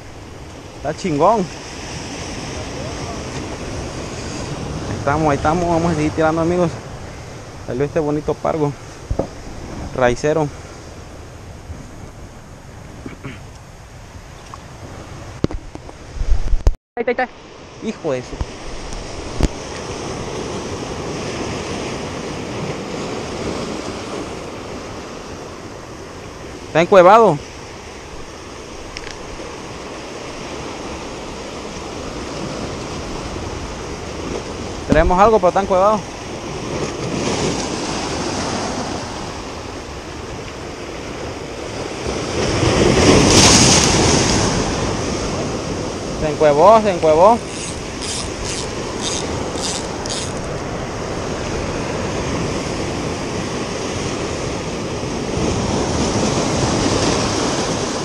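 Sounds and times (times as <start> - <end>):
surf washing over rocks: 0.0 - 16.7, 17.4 - 58.0
surf breaking on rocks: 41.6 - 58.0.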